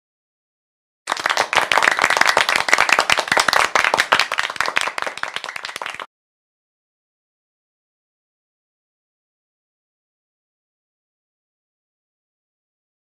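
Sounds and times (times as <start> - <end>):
many hands clapping: 1.1 - 6.1.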